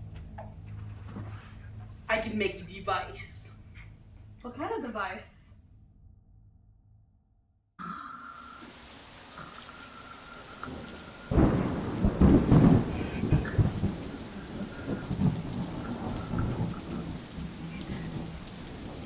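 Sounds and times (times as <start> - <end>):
rain falling: 7.8 - 19.0
rolling thunder rumble: 10.2 - 19.0.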